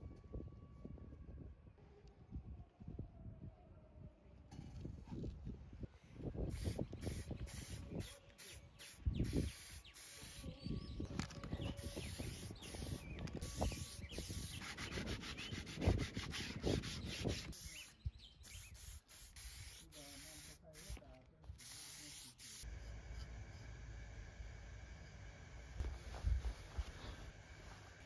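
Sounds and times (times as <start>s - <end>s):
spray can hissing in bursts: 6.5s - 10.6s, 11.5s - 21.0s, 21.6s - 22.7s.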